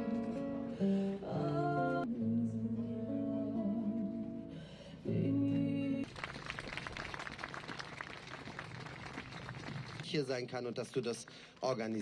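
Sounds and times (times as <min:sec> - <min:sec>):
acoustic guitar music: 0:00.0 - 0:06.0
crowd applause: 0:06.0 - 0:10.1.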